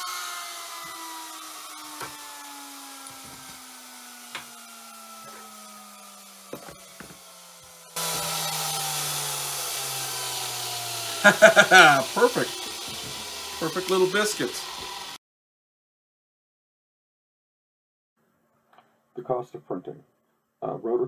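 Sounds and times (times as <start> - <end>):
router motor spinning down: 0.0 - 15.2
clamp knocking on wooden board: 6.5 - 7.2.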